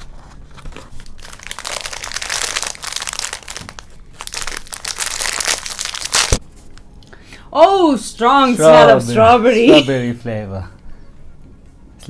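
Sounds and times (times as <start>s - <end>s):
plastic wrapper crinkling: 0.5s - 6.4s.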